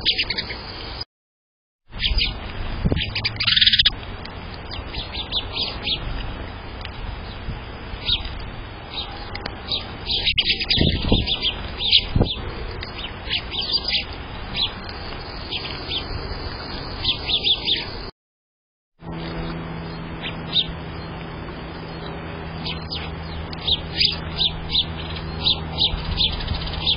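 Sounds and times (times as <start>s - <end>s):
sparrows chirping: 0.0s - 1.0s, 1.9s - 18.1s, 19.1s - 26.9s
fledgling begging calls: 3.0s - 3.9s, 13.0s - 18.1s, 22.6s - 26.9s.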